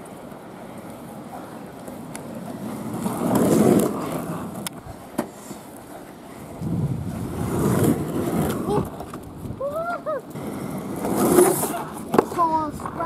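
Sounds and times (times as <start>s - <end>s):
skateboard clicks: 0.0s - 13.0s
skateboard wheels rolling on asphalt: 0.0s - 13.0s.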